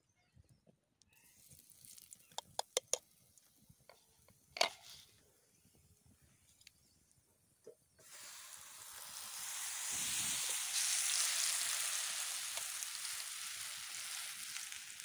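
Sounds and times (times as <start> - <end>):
oil sizzling in frying pan: 8.0 - 15.0.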